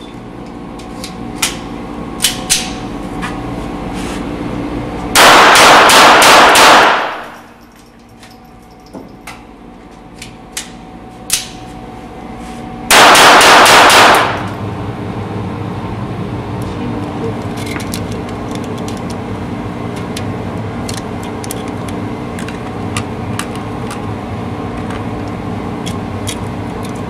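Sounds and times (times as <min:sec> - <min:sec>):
pistol shots echoing indoors: 0:05.2 - 0:07.5, 0:12.9 - 0:14.6.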